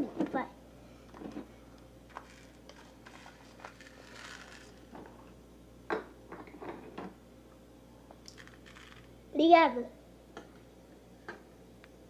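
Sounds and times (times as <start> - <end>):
fork working through rice: 2.1 - 4.8.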